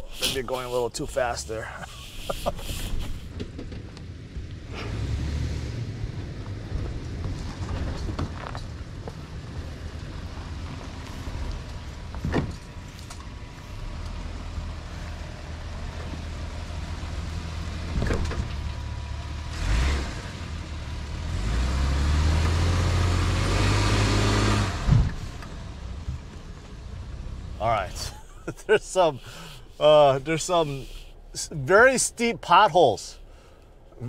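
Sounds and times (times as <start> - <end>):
engine revving: 4.7 - 7.7, 18.8 - 25.8
pickup engine running: 24.7 - 34.0.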